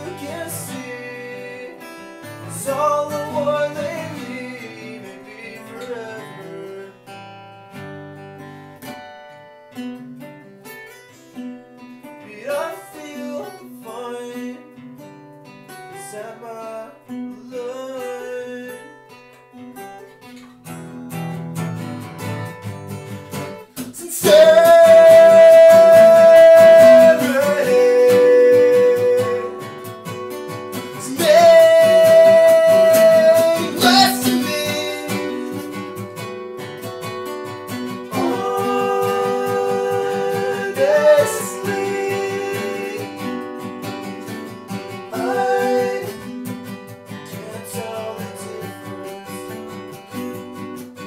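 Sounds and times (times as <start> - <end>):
acoustic guitars strumming: 0.0 - 51.0
person singing long notes: 24.0 - 29.8, 31.0 - 35.6, 38.1 - 43.3.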